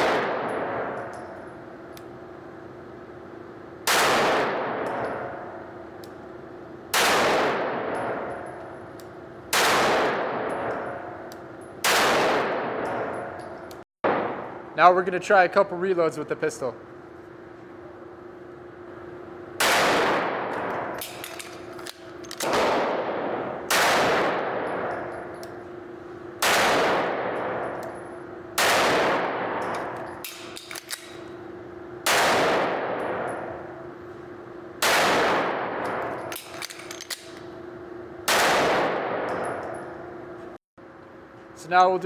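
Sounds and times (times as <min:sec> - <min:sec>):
pistol shots echoing indoors: 0:00.0 - 0:02.1, 0:03.8 - 0:05.9, 0:06.6 - 0:14.7, 0:19.6 - 0:33.9, 0:34.6 - 0:40.2.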